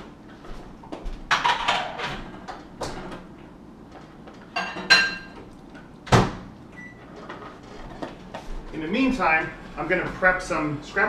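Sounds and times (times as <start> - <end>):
dishes knocking and clinking: 1.3 - 3.2, 4.5 - 5.4.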